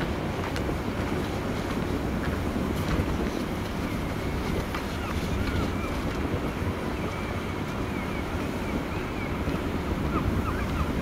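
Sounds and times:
low rumble of sea and ship: 0.0s - 11.0s
wind buffeting microphone: 0.0s - 11.0s.

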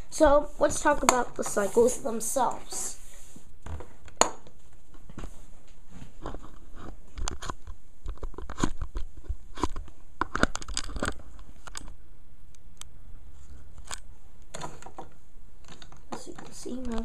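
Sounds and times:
plastic toys clicking and knocking: 7.2s - 11.9s, 13.8s - 17.0s.

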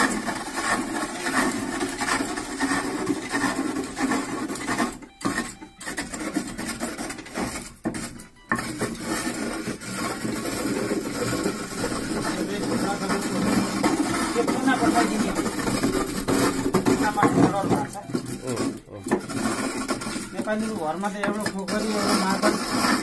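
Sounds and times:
chisel scraping wood on lathe: 0.0s - 23.0s.

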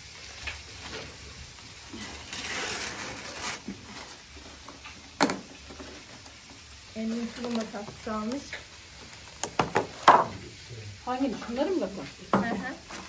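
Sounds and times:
soft rustle: 0.2s - 5.0s, 5.7s - 9.4s.

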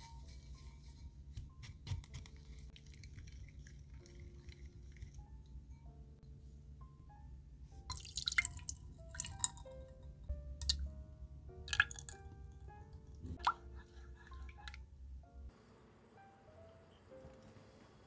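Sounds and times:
gentle background music: 0.0s - 18.0s
milk splashing into saucepan: 7.9s - 9.7s, 11.7s - 12.2s.

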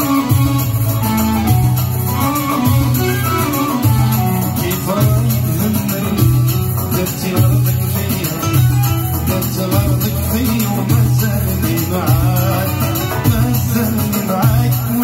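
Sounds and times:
man singing into microphone: 0.0s - 1.6s, 2.2s - 15.0s
goblet drum: 0.0s - 7.8s
keyboard: 0.0s - 15.0s
plucked string melody: 0.0s - 15.0s
repeating bass line: 0.0s - 15.0s.

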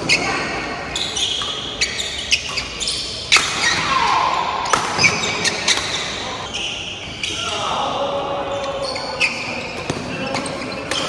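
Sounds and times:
shoes squeaking on wooden floor: 0.0s - 3.8s, 5.0s - 7.7s
rackets hitting shuttlecock: 3.3s - 6.3s, 9.7s - 11.0s.

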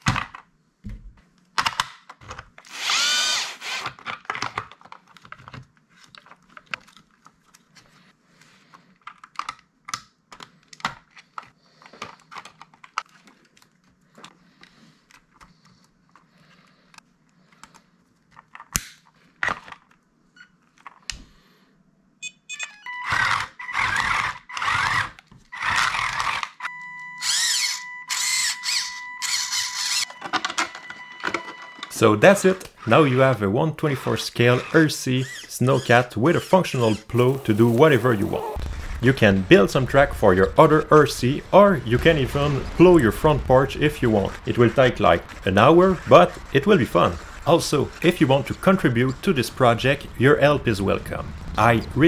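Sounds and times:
plastic parts clicking: 1.5s - 2.7s, 3.8s - 7.9s, 8.7s - 14.4s, 16.9s - 20.0s
loud whirring bursts: 2.7s - 3.9s, 38.4s - 52.0s.

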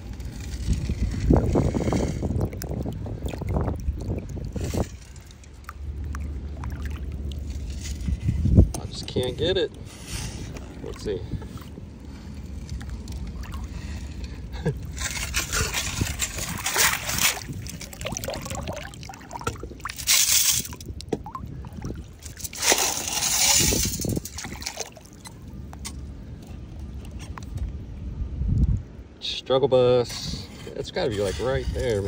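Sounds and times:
water sloshing through scoop: 0.1s - 25.8s
pebbles rattling against metal: 14.9s - 20.9s, 22.2s - 25.4s.

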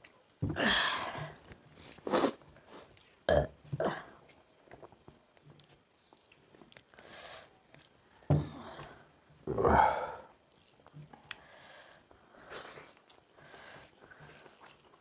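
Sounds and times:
person burping: 3.3s - 4.2s, 9.4s - 10.3s.

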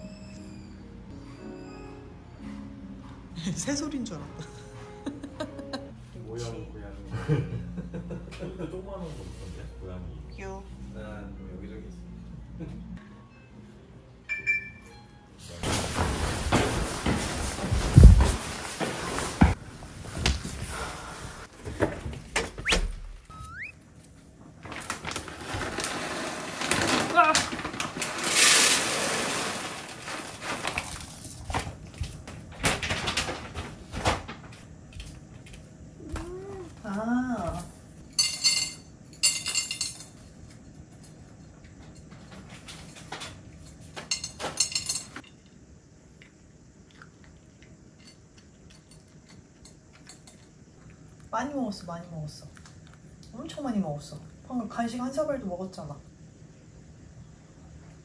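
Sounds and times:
kitten chirping: 23.3s - 23.8s
dishware clinking and scraping: 38.0s - 40.4s, 41.8s - 45.4s.

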